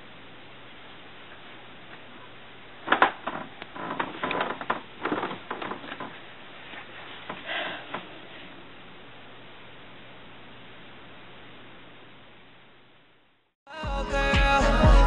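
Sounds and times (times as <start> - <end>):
bedding rustling: 2.8 - 8.6.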